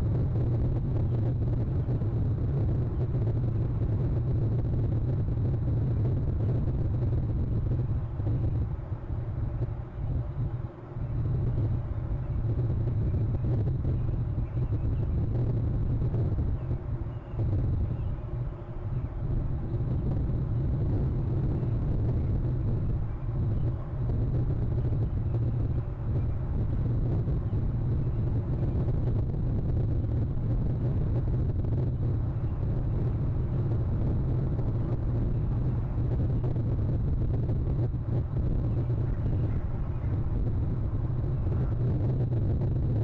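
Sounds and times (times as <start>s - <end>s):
low outdoor rumble: 0.0s - 43.0s.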